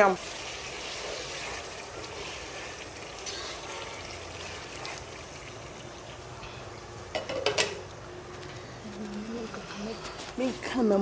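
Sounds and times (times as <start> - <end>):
food sizzling in a pot: 0.0 - 7.9
utensil clinking on cookware: 3.2 - 4.9, 6.4 - 7.9.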